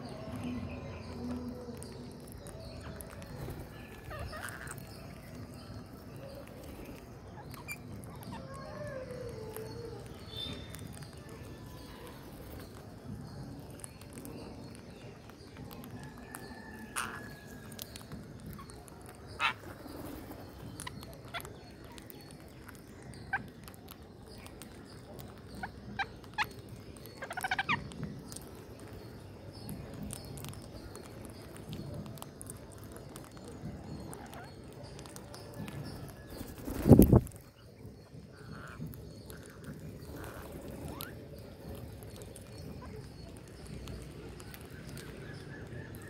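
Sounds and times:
parakeet calls: 1.8s - 5.6s, 6.2s - 12.2s, 16.6s - 22.1s, 23.1s - 29.0s, 33.9s - 46.0s.

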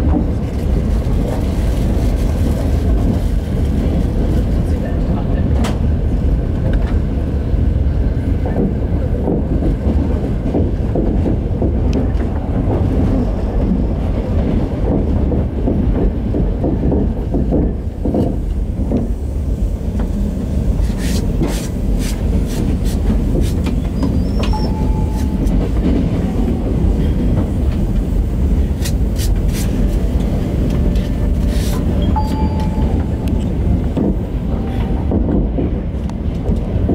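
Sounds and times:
train rumbling on track: 0.0s - 36.9s.

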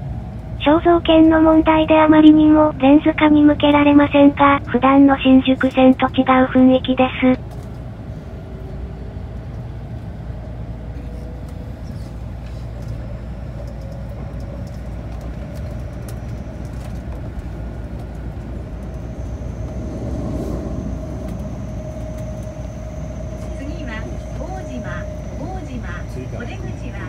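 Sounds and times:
subway wheels rumbling on track: 0.0s - 27.0s
mid-pitched hum: 0.6s - 8.6s, 10.9s - 27.0s
faint high electrical whine: 17.9s - 27.0s.

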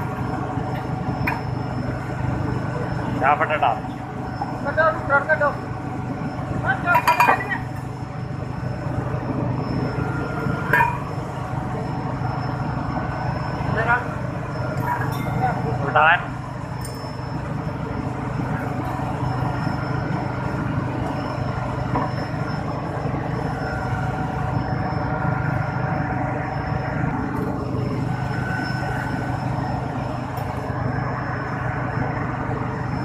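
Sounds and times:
faint high whine: 0.0s - 33.0s
low mechanical machinery drone: 0.0s - 33.0s.

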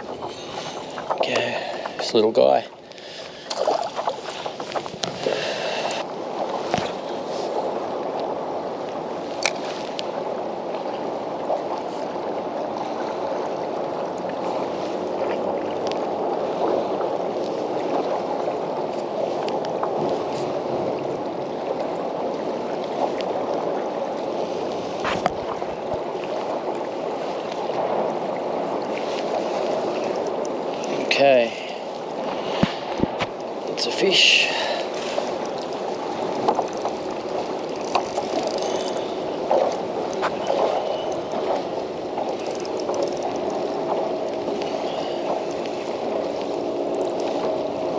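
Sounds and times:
water lapping against hull: 0.0s - 47.9s
sharp clicks: 42.2s - 43.6s.

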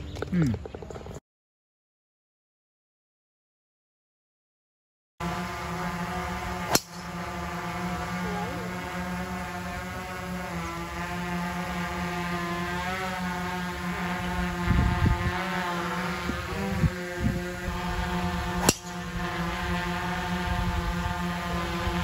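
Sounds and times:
steady low hum: 5.2s - 22.0s
golf club striking ball: 5.8s - 8.1s, 18.2s - 19.7s.

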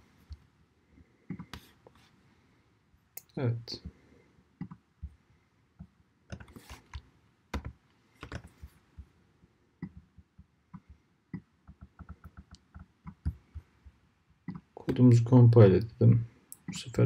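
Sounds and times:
computer keyboard typing: 7.5s - 8.5s, 11.6s - 13.4s.

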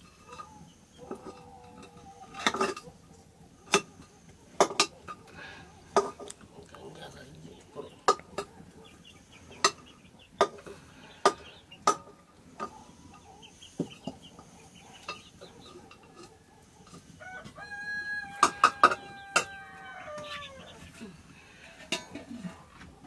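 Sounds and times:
chickens clucking: 0.0s - 23.0s
rooster crowing: 17.2s - 20.9s.

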